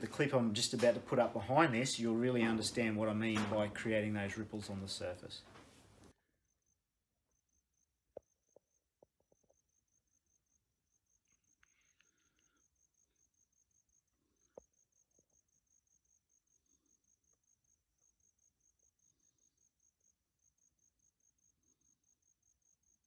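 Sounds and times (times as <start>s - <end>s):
insect chirping: 6.5s - 23.0s.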